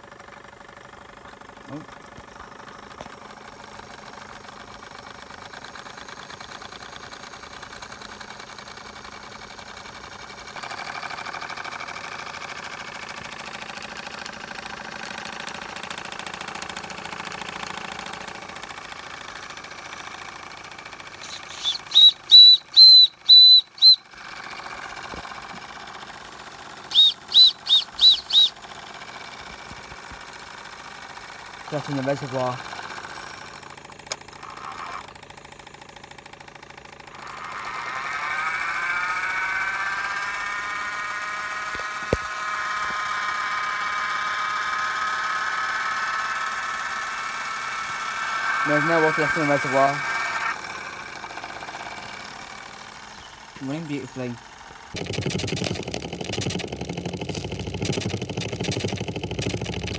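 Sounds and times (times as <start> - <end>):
model steam engines chuffing: 0.0 - 59.9
steam whistle toots: 21.2 - 24.0, 26.9 - 28.5.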